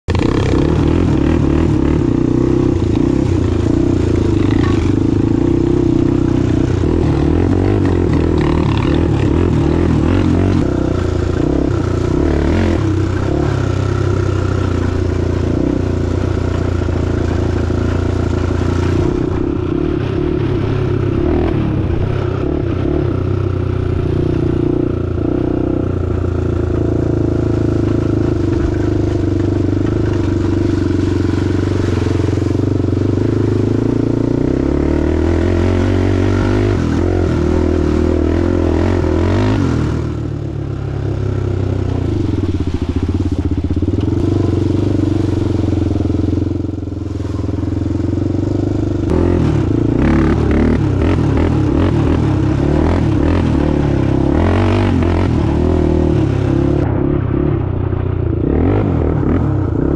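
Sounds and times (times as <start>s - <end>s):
quad engine running: 0.0s - 59.9s.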